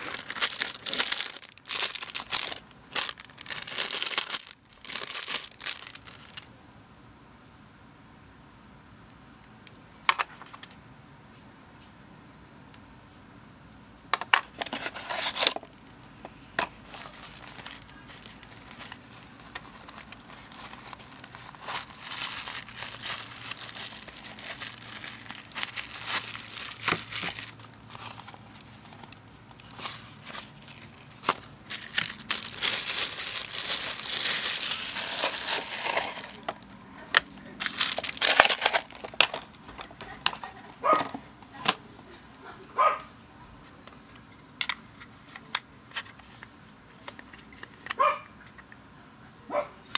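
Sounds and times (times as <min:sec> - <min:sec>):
plastic packaging crinkling: 0:00.0 - 0:06.5, 0:14.2 - 0:15.9, 0:16.6 - 0:40.4.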